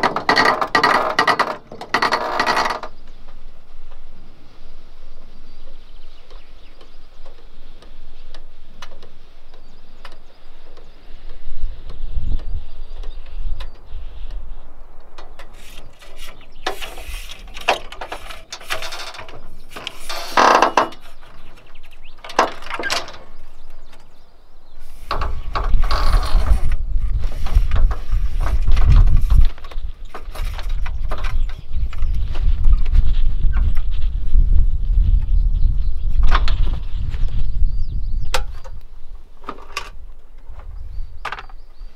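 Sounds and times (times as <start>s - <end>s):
metal awning clicking and ratcheting: 0.0s - 2.9s, 15.1s - 24.2s.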